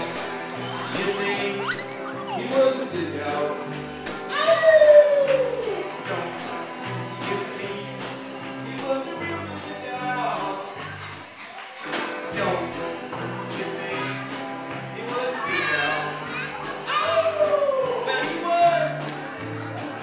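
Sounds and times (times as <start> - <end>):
drum kit: 0.0 - 11.3
bass guitar: 0.0 - 11.4, 12.0 - 20.0
man singing: 0.7 - 10.8, 12.3 - 14.3, 14.9 - 16.2, 16.9 - 19.1.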